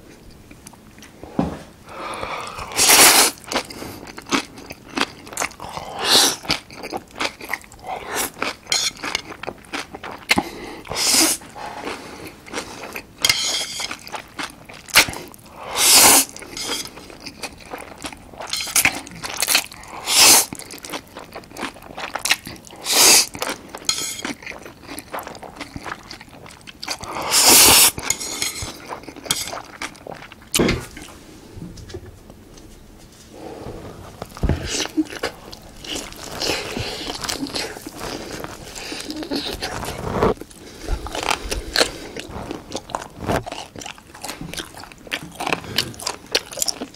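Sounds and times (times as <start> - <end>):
wet chewing: 2.2 - 15.5, 16.2 - 31.1, 33.6 - 46.9
slurping noodles: 15.0 - 16.9, 27.0 - 28.7, 33.4 - 44.7.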